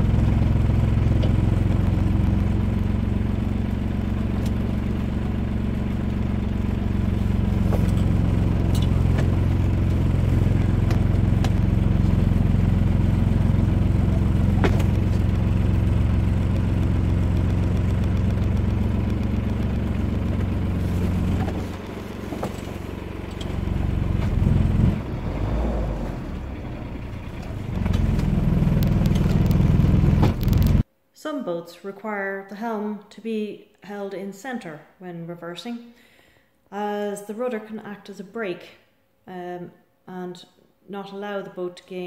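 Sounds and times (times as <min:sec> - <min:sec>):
boat engine running at low revs: 0:00.0 - 0:30.8.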